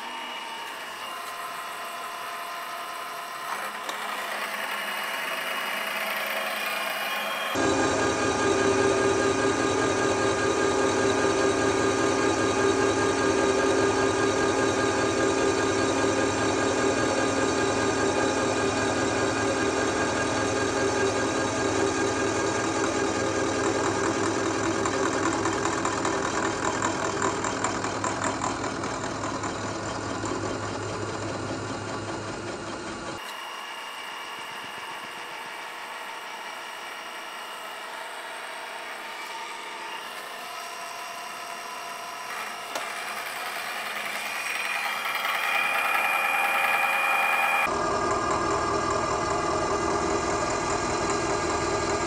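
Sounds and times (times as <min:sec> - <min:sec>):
milling machine cutting: 0:00.0 - 0:52.0.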